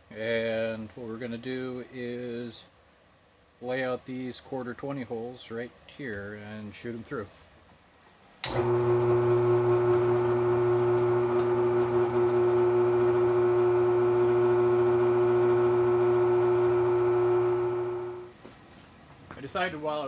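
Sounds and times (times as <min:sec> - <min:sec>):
drill press motor hum: 0:08.4 - 0:18.3
drilling through steel: 0:08.6 - 0:18.3.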